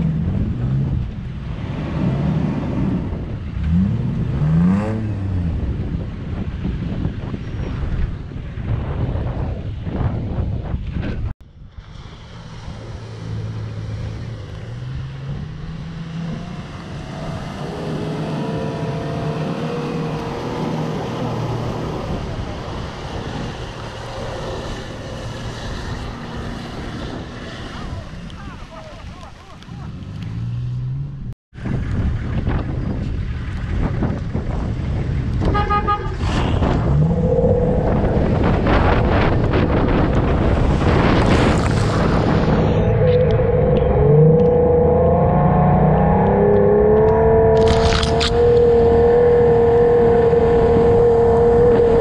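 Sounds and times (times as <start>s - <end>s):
wind buffeting: 0.0s - 52.0s
car horn toot: 35.4s - 36.2s.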